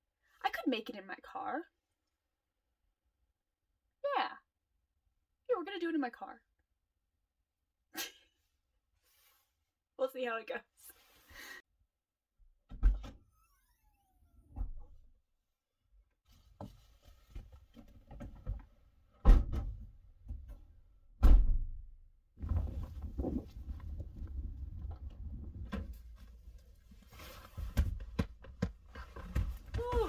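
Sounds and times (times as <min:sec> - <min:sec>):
wind rumbling: 0:22.4 - 0:26.4
rustling and handling: 0:22.4 - 0:30.0.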